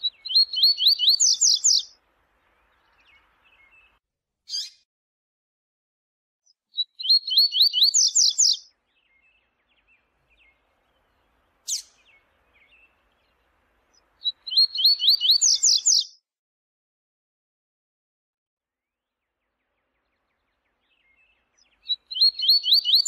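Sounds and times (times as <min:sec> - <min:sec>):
bird song of rising notes: 0:00.0 - 0:04.8, 0:06.5 - 0:16.2, 0:18.8 - 0:23.0
soft bird twitters: 0:00.0 - 0:04.8, 0:06.5 - 0:16.2, 0:19.3 - 0:23.0.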